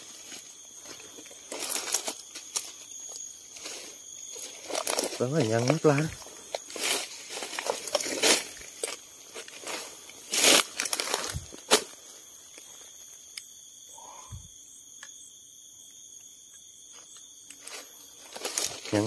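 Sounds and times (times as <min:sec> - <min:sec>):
rustling of grass and brush: 0:00.0 - 0:13.2, 0:17.6 - 0:19.0
footsteps: 0:00.1 - 0:12.0.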